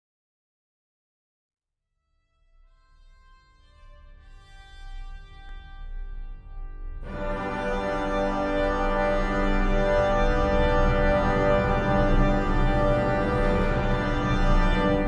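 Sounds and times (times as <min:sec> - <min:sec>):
sustained organ chord: 0:07.0 - 0:15.0.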